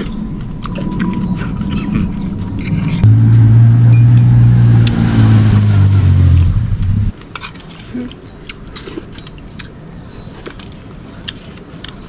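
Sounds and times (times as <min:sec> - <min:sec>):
low motor drone: 0:02.1 - 0:07.1.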